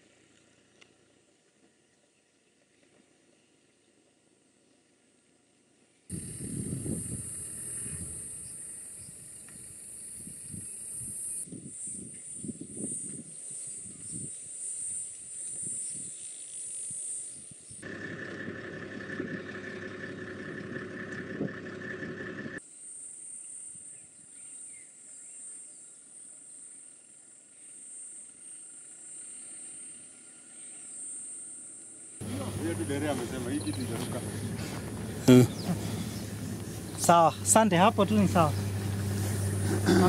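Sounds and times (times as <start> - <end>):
insects buzzing: 6.1 - 40.0
low hum: 32.2 - 40.0
steady mid-pitched tone: 32.2 - 40.0.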